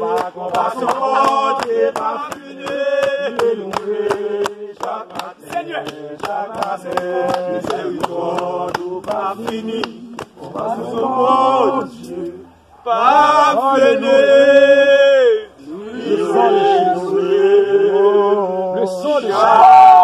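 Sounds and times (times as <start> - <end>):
hand clapping: 0.0 - 10.8
group singing a prayer song: 0.0 - 20.0.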